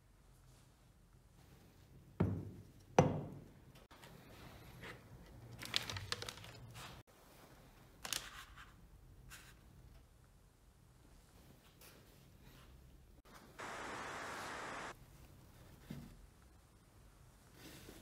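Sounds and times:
paper crinkling: 5.6s - 7.0s.

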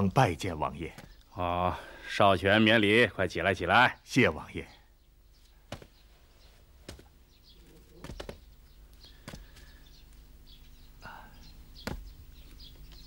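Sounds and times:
footsteps on stone floor: 5.4s - 9.8s.

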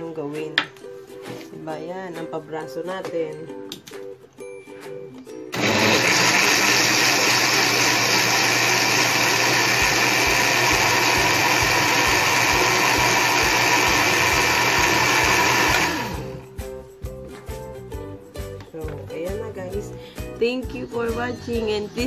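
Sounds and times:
electric blender running: 5.5s - 16.4s.

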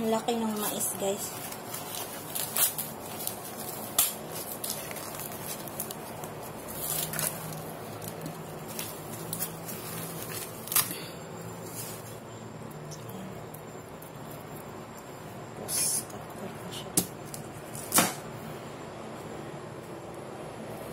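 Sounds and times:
corn husk leaves rustling: 0.1s - 12.3s
husk snapping: 3.6s - 9.5s.

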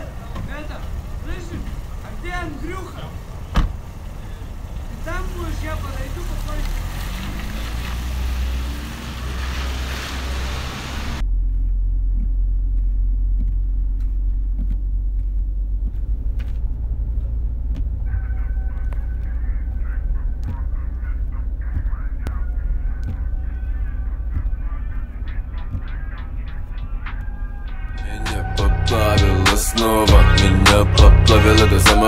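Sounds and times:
car cabin rumble: 0.0s - 6.6s, 10.8s - 32.0s
car tyres hissing on wet road: 0.0s - 11.2s
wavering honk-like tones: 18.0s - 32.0s.

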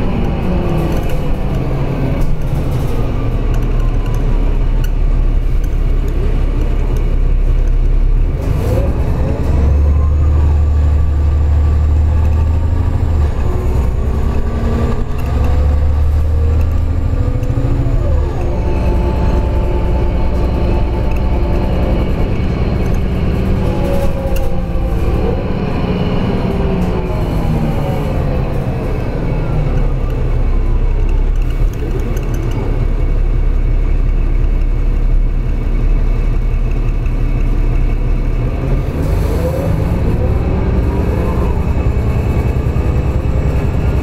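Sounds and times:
bus engine drone inside cabin: 0.0s - 44.0s
whining drivetrain: 0.0s - 44.0s.

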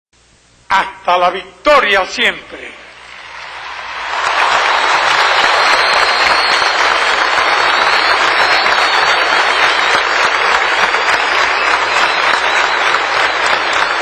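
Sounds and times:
crowd applauding: 3.0s - 14.0s
high wavering whistles: 5.2s - 10.3s.

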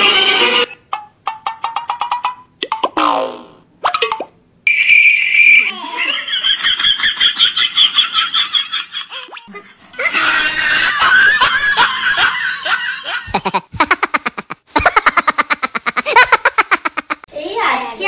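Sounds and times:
children squealing: 4.7s - 6.2s, 10.0s - 11.7s
children laughing: 5.2s - 17.3s.

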